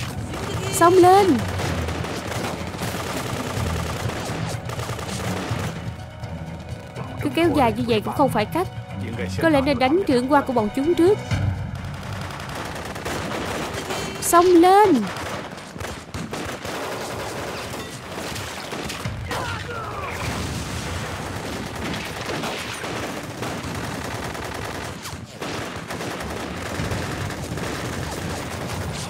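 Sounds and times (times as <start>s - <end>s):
rifle gunfire: 0.0s - 6.0s, 11.7s - 19.2s, 20.2s - 29.0s
person shouting: 19.3s - 20.2s.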